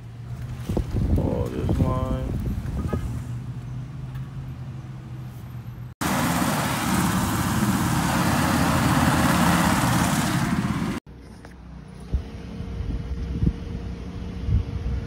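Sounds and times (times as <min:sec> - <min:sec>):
road and traffic noise: 0:00.0 - 0:15.0
car engine and cabin hum: 0:05.9 - 0:12.6.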